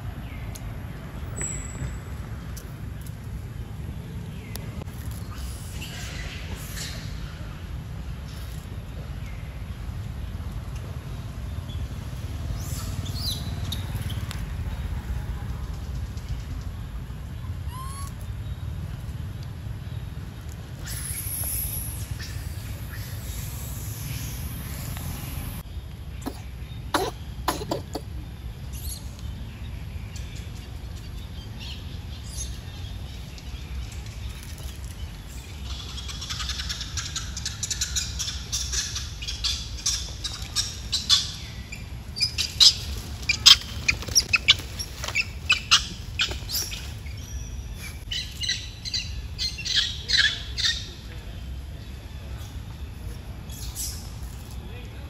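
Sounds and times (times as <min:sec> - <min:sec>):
low steady rumble: 0:00.0 - 0:55.0
high-pitched animal chirps and squeaks: 0:17.6 - 0:18.2.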